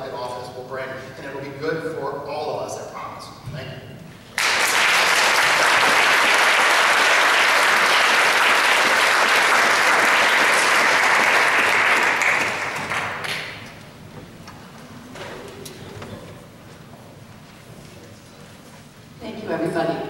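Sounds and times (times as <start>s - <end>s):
audience applause: 4.4s - 13.6s.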